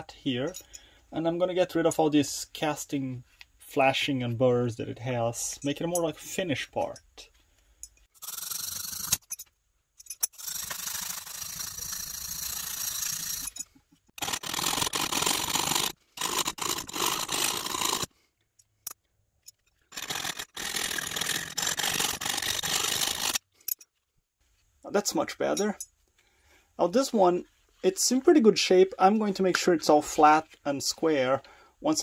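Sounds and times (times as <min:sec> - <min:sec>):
metal part rasping on sandpaper: 0:10.4 - 0:13.6, 0:14.2 - 0:18.1, 0:19.9 - 0:23.4.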